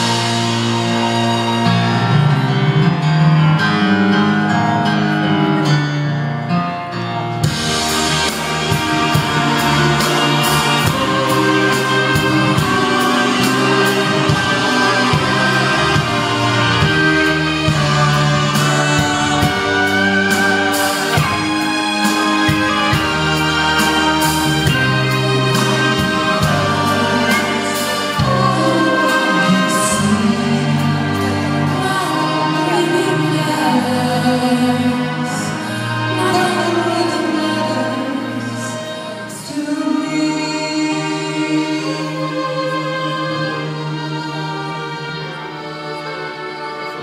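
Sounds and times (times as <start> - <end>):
men singing with band and orchestra: 0.0 - 47.0
steady drum beat: 7.4 - 32.5.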